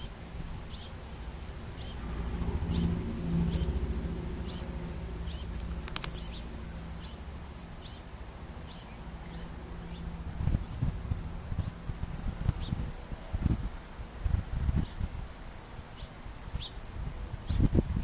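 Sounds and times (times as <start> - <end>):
low rumbles: 0.0 - 15.3
low steady hum: 0.0 - 18.0
fledgling bird squeaking: 1.8 - 2.0, 4.4 - 10.9.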